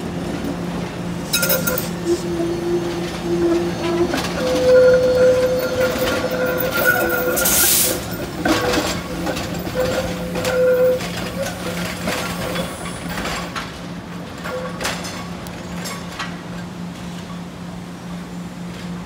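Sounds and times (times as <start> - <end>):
wheels clacking over track joints: 0.0 - 17.3
train wheels squealing on rails: 0.4 - 13.6, 14.4 - 16.6.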